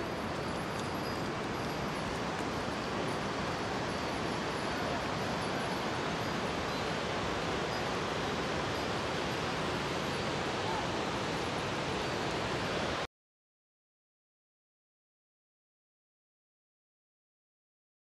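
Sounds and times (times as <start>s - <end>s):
river rushing over rocks: 0.0s - 13.1s.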